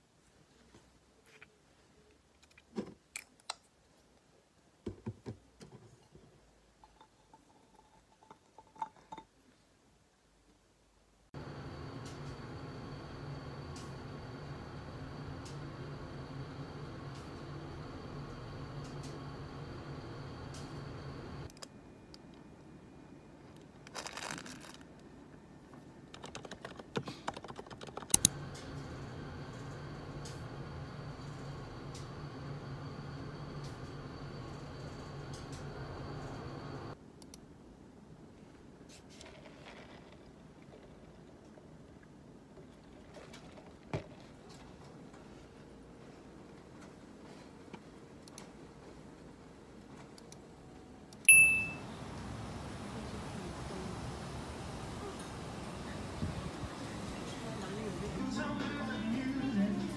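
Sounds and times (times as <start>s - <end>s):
steady hum: 11.4s - 22.0s, 28.2s - 37.0s, 51.0s - 59.9s.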